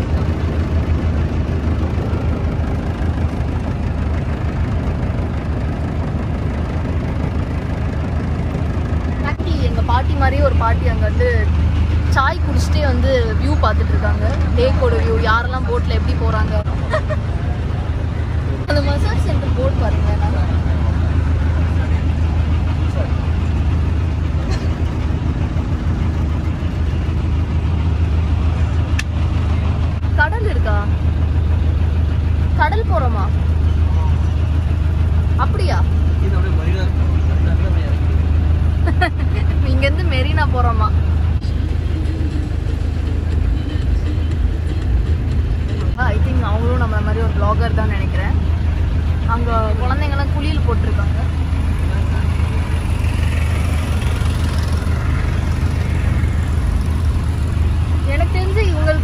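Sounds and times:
boat engine drone: 0.0s - 59.0s
rushing water wash: 0.0s - 59.0s.

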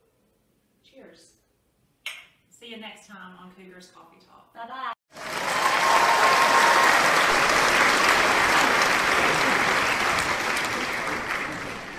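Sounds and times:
crowd applauding: 5.1s - 11.9s.

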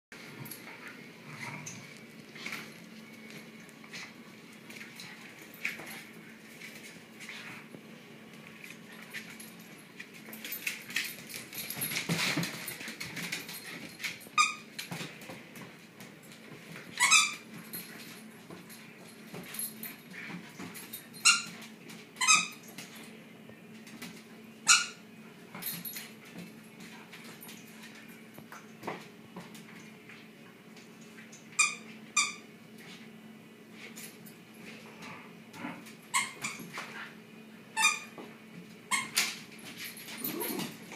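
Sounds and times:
dogs play growling: 0.2s - 14.2s, 14.8s - 22.0s, 33.8s - 37.3s, 39.5s - 40.9s.

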